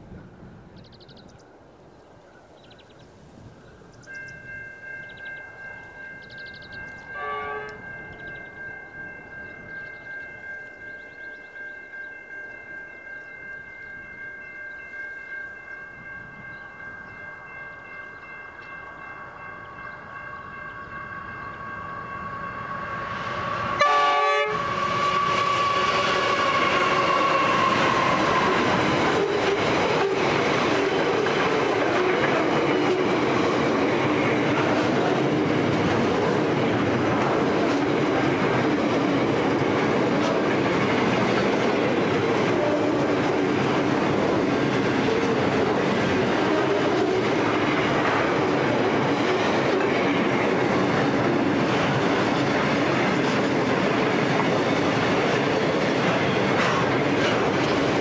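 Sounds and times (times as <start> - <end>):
locomotives passing with whine: 0.0 - 58.0
high ringing rail tones: 2.4 - 58.0
train wagons rumbling: 3.9 - 58.0
wheels clacking over rail joints: 24.8 - 58.0.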